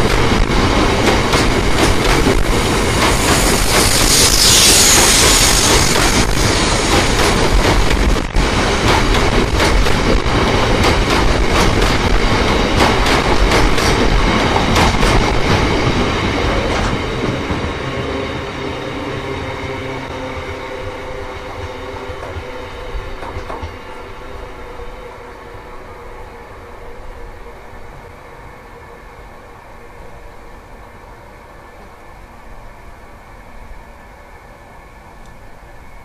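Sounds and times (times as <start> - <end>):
train wheels clacking over rails: 0.0 - 24.2
train rumble: 0.0 - 36.0.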